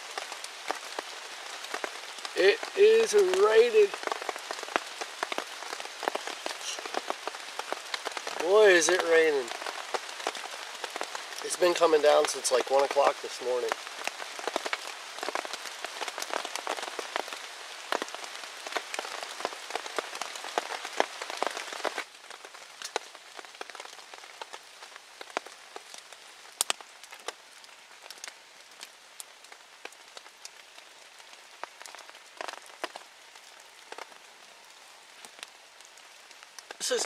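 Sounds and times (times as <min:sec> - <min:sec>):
heavy rain hissing: 0:00.0 - 0:37.0
raindrops striking close by: 0:00.0 - 0:37.0.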